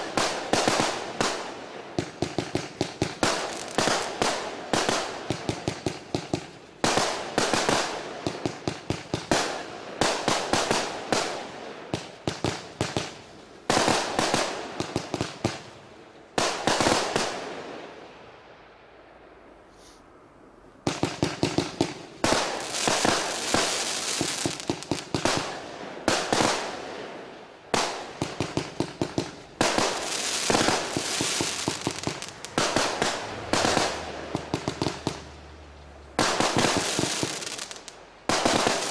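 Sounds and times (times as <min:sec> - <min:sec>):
firework cake popping: 0:27.8 - 0:35.2.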